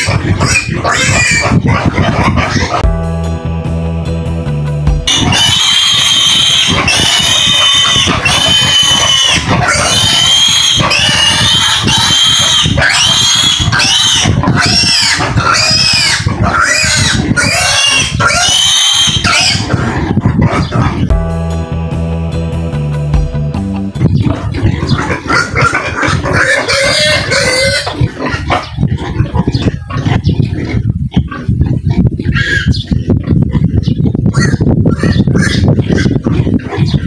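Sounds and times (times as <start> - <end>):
pig squealing: 0.0 - 2.8, 5.1 - 21.1, 24.0 - 37.0
background music: 2.4 - 11.2, 20.7 - 27.8.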